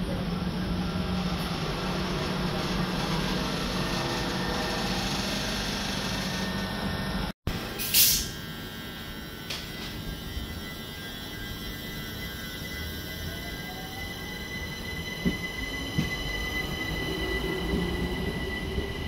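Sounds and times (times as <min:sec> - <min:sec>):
train hum: 0:00.0 - 0:19.0
air hiss: 0:07.8 - 0:08.4
train wheels rumbling: 0:13.6 - 0:19.0.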